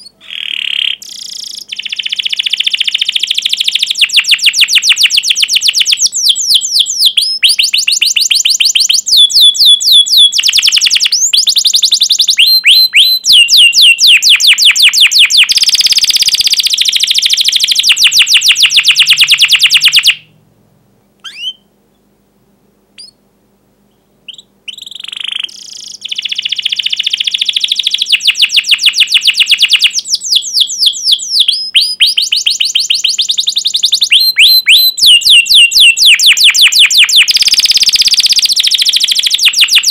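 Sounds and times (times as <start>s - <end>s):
canary singing trills: 0.0s - 20.4s, 21.2s - 22.1s, 23.0s - 23.2s, 23.9s - 39.9s
canary single calls: 0.0s - 20.4s, 21.2s - 21.7s, 23.0s - 23.2s, 23.9s - 39.9s.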